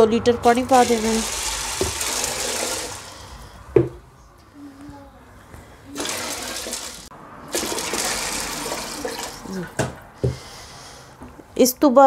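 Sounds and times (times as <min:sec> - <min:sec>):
water pouring onto beans: 0:00.7 - 0:03.3, 0:06.0 - 0:09.5.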